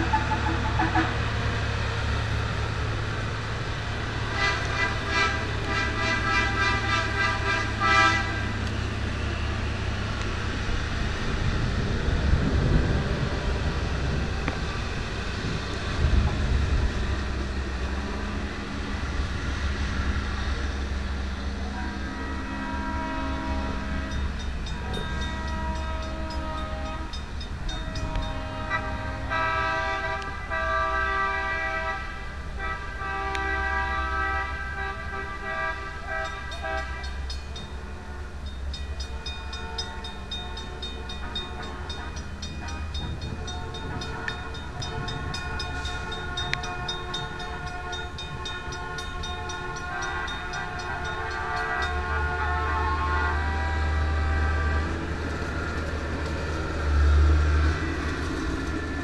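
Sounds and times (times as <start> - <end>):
locomotive air horn blasts: 0.0 - 1.3, 4.2 - 8.7, 21.5 - 55.5
train rumbling: 0.0 - 59.0.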